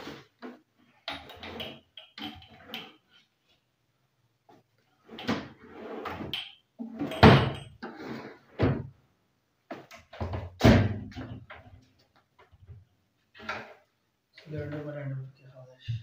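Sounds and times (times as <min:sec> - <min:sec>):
cabinet doors opening: 0:05.1 - 0:07.6.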